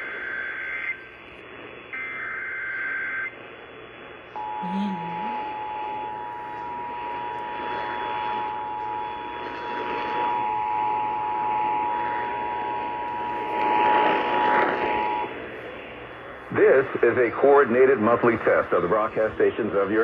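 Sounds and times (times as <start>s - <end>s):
radio static hiss: 0.0s - 20.0s
emergency alert two-tone signal: 4.4s - 7.0s.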